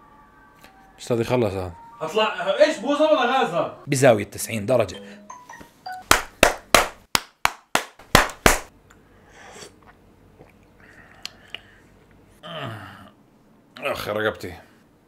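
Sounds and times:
sharp claps or knocks: 0:06.0 - 0:08.7.

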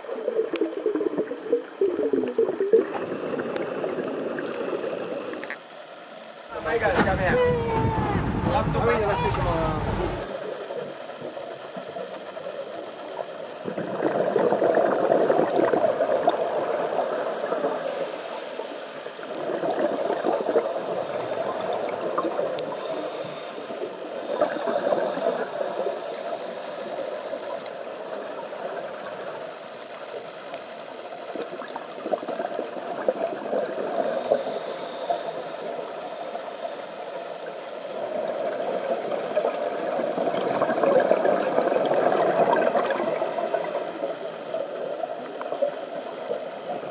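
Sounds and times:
exhaled bubbles gurgling underwater: 0:00.0 - 0:05.5, 0:07.4 - 0:29.5, 0:30.9 - 0:46.9
regulator hiss of inhaled air: 0:16.7 - 0:19.3, 0:22.6 - 0:24.0, 0:25.4 - 0:27.6, 0:34.0 - 0:35.8, 0:42.7 - 0:44.7.

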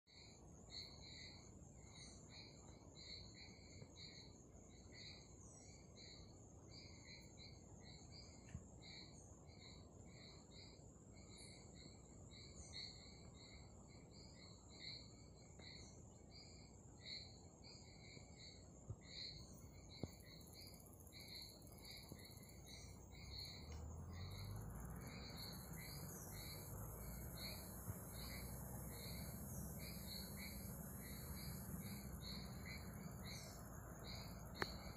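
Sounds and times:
high insect hum: 0:00.1 - 0:34.9
bird calls: 0:19.3 - 0:34.9.

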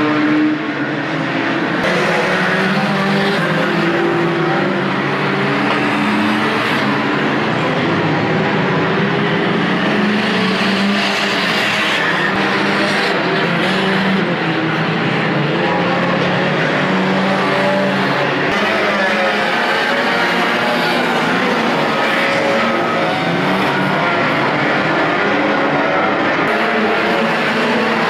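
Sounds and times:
racing car engines roaring: 0:00.0 - 0:28.0.

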